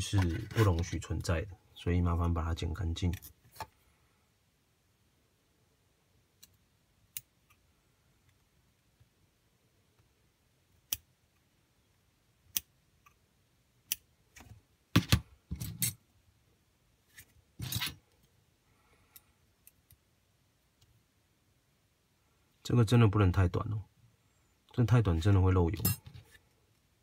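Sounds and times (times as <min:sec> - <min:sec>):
handling noises: 0:00.0 - 0:01.1.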